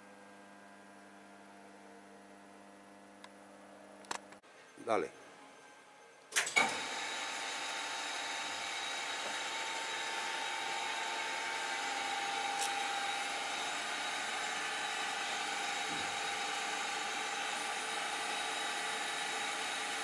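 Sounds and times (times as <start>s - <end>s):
mechanical hum: 0.0s - 20.0s
grinding machine whine: 6.5s - 20.0s.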